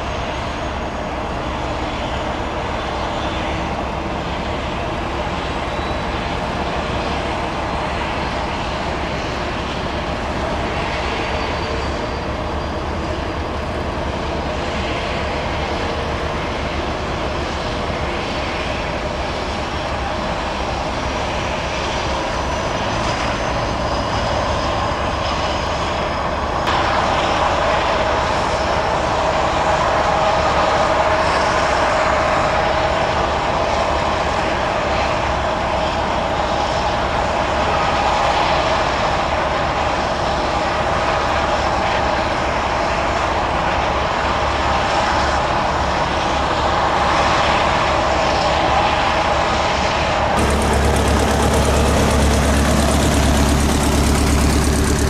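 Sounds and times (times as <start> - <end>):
turbine engine whine: 0.0 - 55.0
steady rushing noise: 13.0 - 32.9, 44.8 - 55.0.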